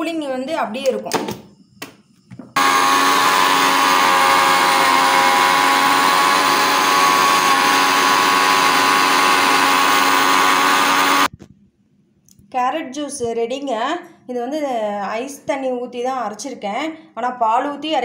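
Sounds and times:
mixer grinder motor running: 2.6 - 11.3.

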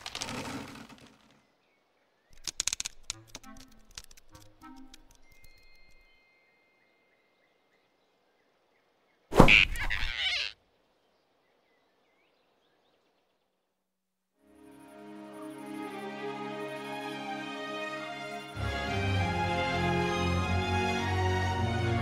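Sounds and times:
cartoon sound effect: 9.4 - 10.5.

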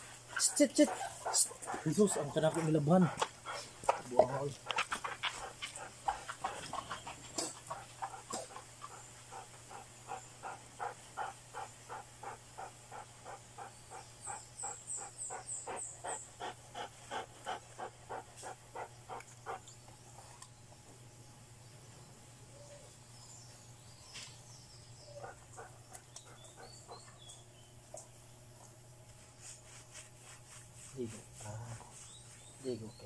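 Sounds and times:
dog panting: 0.0 - 19.8, 25.0 - 27.4.

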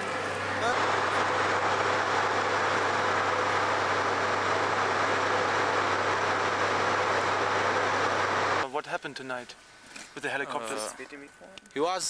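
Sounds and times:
vehicle engine running: 0.0 - 8.7.

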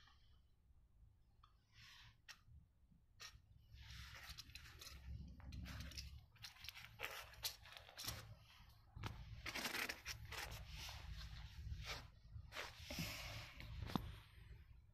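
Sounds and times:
scraping and rustling: 3.2 - 14.4.

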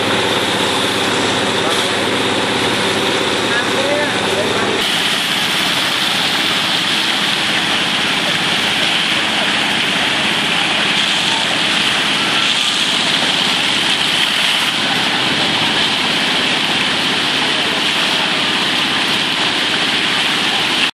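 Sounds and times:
hose jet spraying water: 0.0 - 20.9
water splashing on pond: 4.7 - 20.9.

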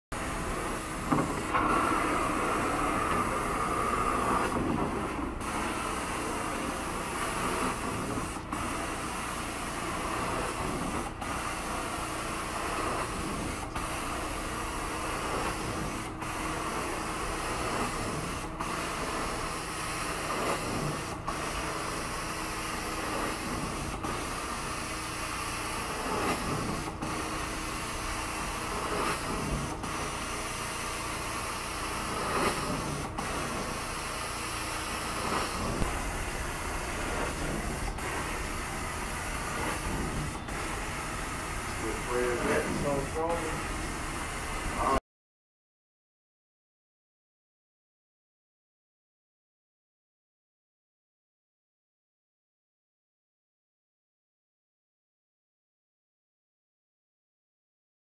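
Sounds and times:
carpet cleaning wand hissing: 0.2 - 45.0.

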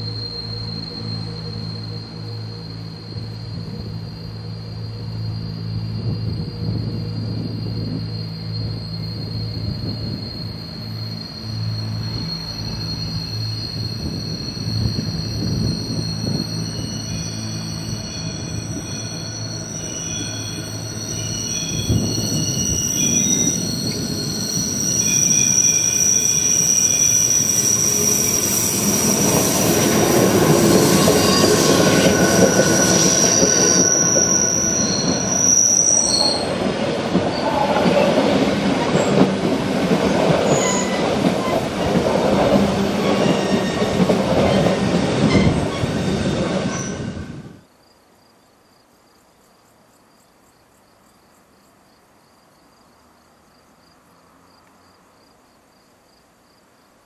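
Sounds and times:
faint steady high tone: 0.0 - 36.5
train rumbling and clattering: 0.0 - 47.7
train wheels squealing: 0.0 - 47.7.

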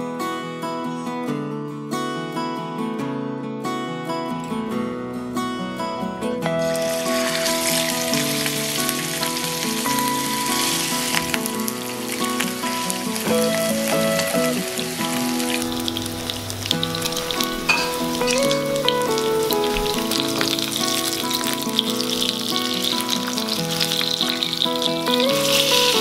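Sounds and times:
background music melody: 0.1 - 26.0
fish sizzling in oil: 6.6 - 26.0.

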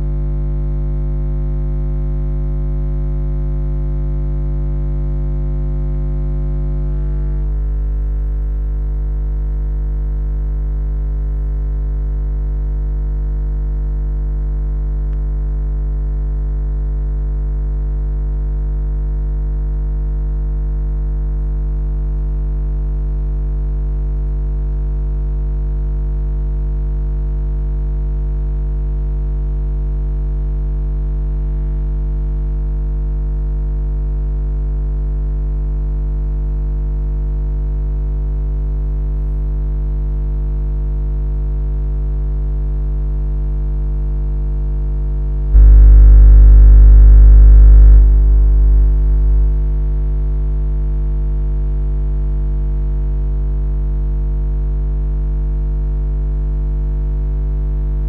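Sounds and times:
held synthesizer chord: 45.6 - 49.7.

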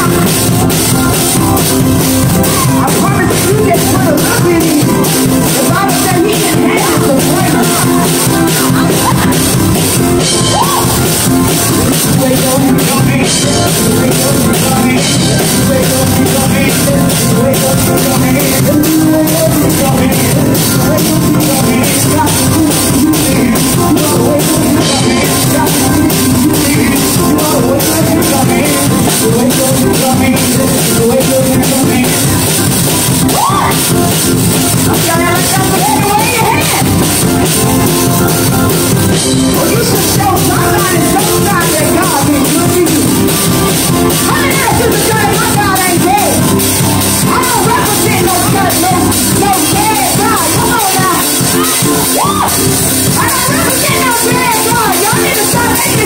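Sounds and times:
gospel music with drums: 0.0 - 56.0
woman singing into a microphone: 34.9 - 36.9, 53.1 - 56.0.

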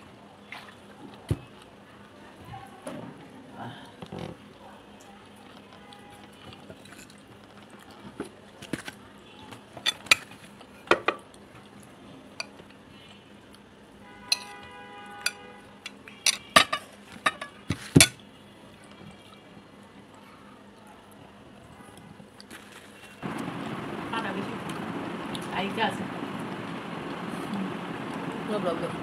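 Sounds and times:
plate ringing: 14.3 - 14.6
spoon clinking on ceramic plates: 14.3 - 14.6, 15.2 - 18.2.

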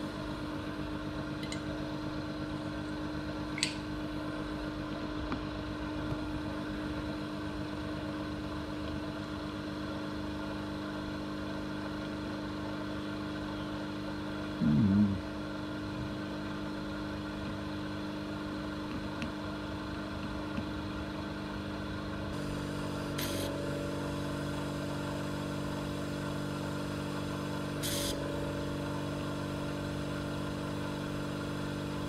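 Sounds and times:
vacuum pump humming: 0.0 - 32.0
short air hiss: 23.2 - 23.5, 27.8 - 28.2.

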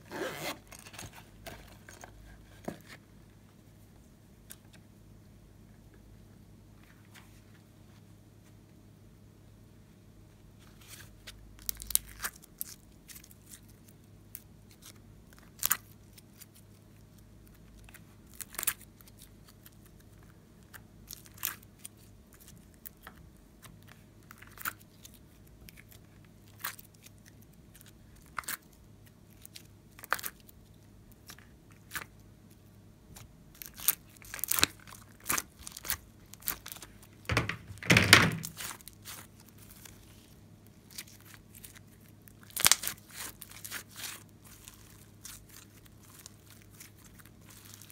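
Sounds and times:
slime popping and crackling: 33.2 - 36.9, 40.9 - 47.9.

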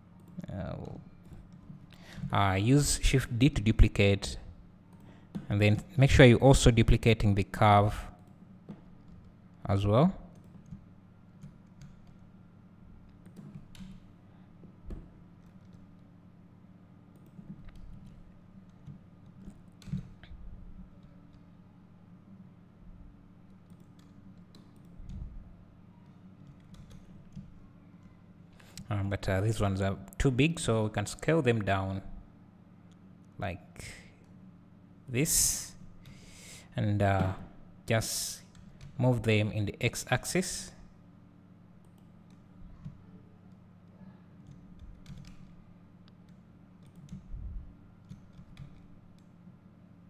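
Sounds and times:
low steady hum: 0.0 - 50.0
keyboard and mouse clicks: 13.0 - 14.1, 26.0 - 28.2, 44.4 - 47.3, 48.0 - 49.3.

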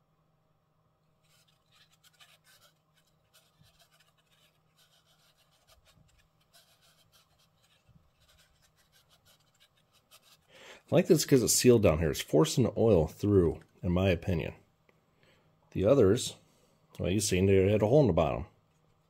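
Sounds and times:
faint room hum: 0.0 - 19.0
fingers scratching paper filter: 1.2 - 10.5.

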